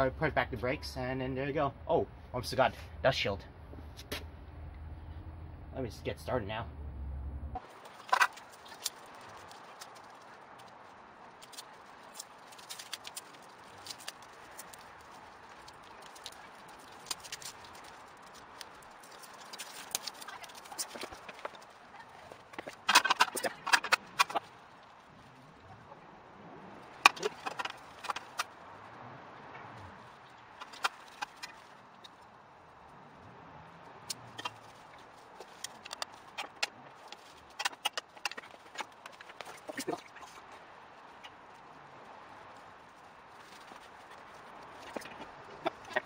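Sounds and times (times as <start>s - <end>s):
metal tools clinking on wheel hub: 11.4s - 24.5s
parts clicking and knocking: 22.3s - 24.5s, 26.9s - 28.5s, 30.4s - 32.1s, 34.1s - 40.5s.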